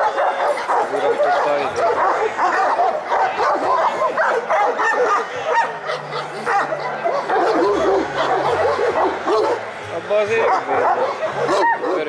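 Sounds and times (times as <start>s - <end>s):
dogs barking: 0.0s - 12.0s.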